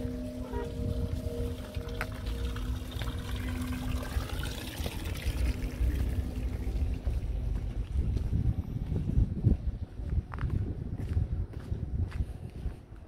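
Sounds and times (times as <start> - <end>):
water trickling into basin: 0.0 - 7.4
low rumble: 0.0 - 13.0.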